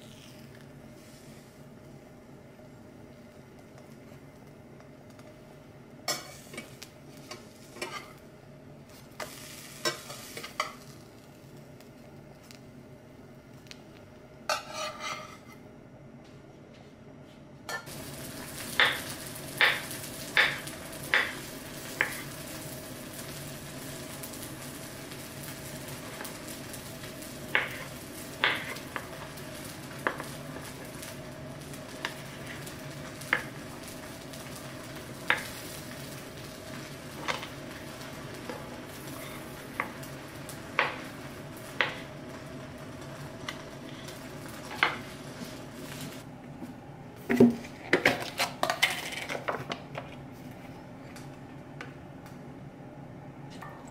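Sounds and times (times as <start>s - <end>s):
steady hiss: 0.0s - 14.2s, 17.8s - 46.3s
utensils scraping frying pan: 6.1s - 8.2s, 14.5s - 15.6s, 39.0s - 39.5s.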